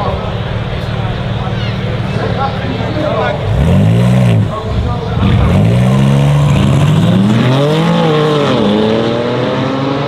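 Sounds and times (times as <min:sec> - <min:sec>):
cars accelerating hard: 0:02.8 - 0:10.0.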